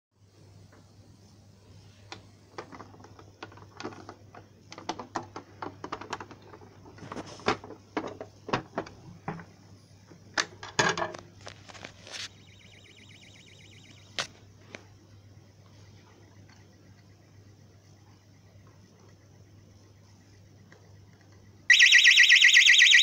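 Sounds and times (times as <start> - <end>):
plastic clicks and knocks: 2.6 - 6.7.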